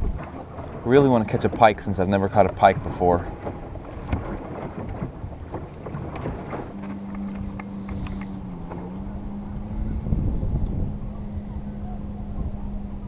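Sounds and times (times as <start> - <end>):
steady low hum: 0.0 - 13.0
wind rumbling on microphone: 0.0 - 13.0.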